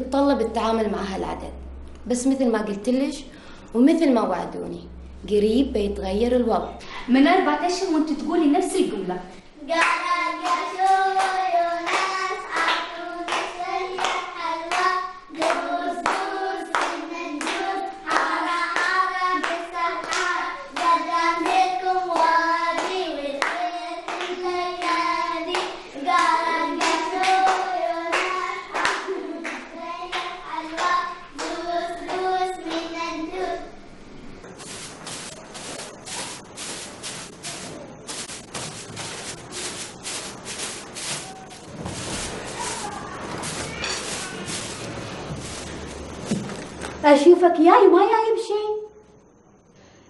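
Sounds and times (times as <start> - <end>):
voices singing a chant: 9.7 - 33.5
hand claps: 9.8 - 32.9.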